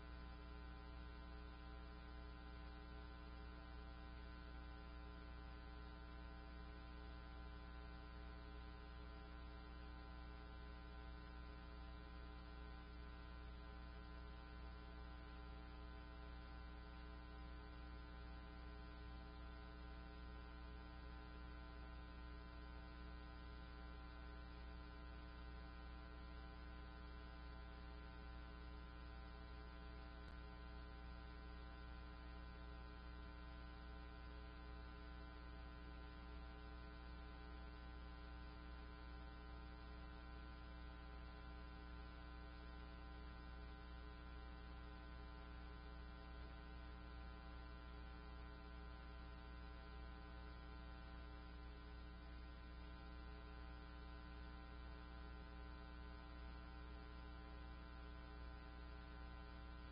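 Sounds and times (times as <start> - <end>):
low electrical hum: 0.0 - 59.9.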